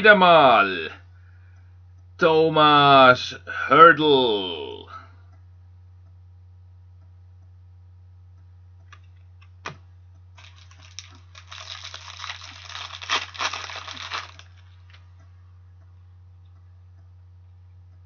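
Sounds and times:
cards rustling: 10.4s - 15.0s.

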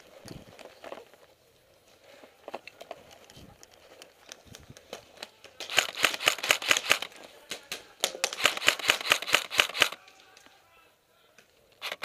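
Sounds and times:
airsoft rifle rapid firing: 5.6s - 7.1s, 8.2s - 10.0s, 11.8s - 12.0s.

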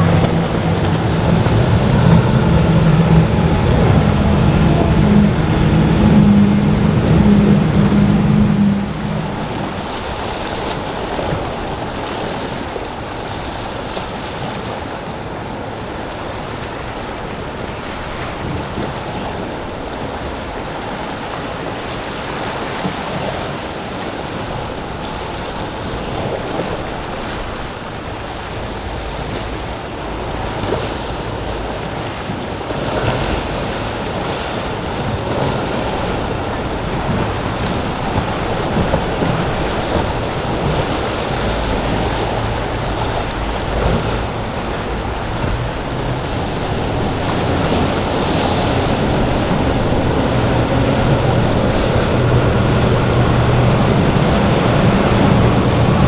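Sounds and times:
powerboat engines: 0.0s - 56.0s
sea surf washing: 0.0s - 56.0s
wind buffeting microphone: 0.0s - 56.0s.

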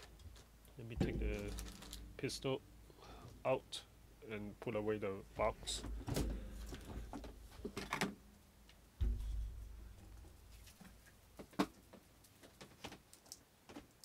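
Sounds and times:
dull thump: 1.0s - 2.5s, 5.4s - 8.3s, 9.0s - 11.0s.

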